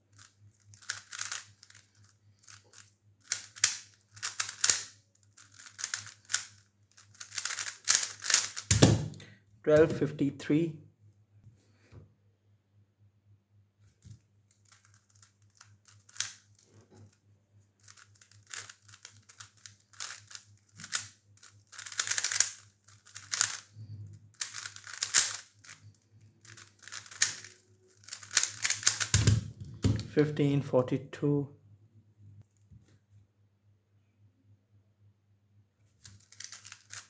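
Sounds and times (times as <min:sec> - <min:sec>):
faint steady hum: 0:00.0 - 0:37.0
puzzle cube layers clicking: 0:00.2 - 0:08.9, 0:14.6 - 0:16.6, 0:17.8 - 0:23.7, 0:24.4 - 0:25.8, 0:26.4 - 0:29.5, 0:36.1 - 0:37.0.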